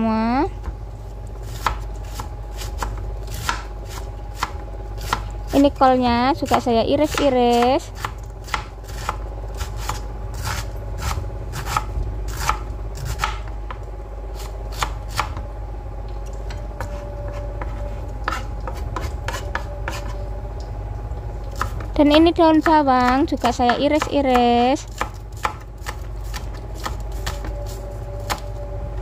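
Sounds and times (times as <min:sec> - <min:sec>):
knife chopping on cutting board: 0:01.5 - 0:05.3, 0:06.4 - 0:13.5, 0:14.4 - 0:15.4, 0:16.8 - 0:20.2, 0:21.6 - 0:27.6.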